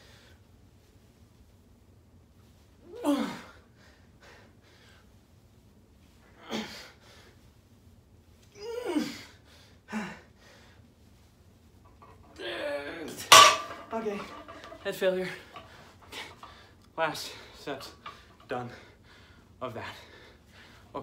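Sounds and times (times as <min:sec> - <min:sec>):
man grunting and gasping: 0:02.9 - 0:03.6.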